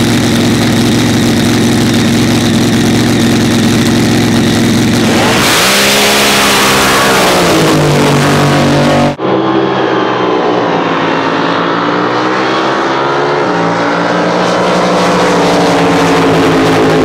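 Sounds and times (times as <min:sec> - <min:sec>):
boat engine running at low speed: 0:00.0 - 0:09.6, 0:13.6 - 0:17.0.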